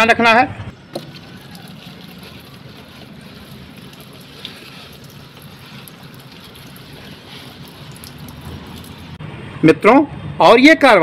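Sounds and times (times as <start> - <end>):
water spraying onto leaves: 0.9 - 9.2.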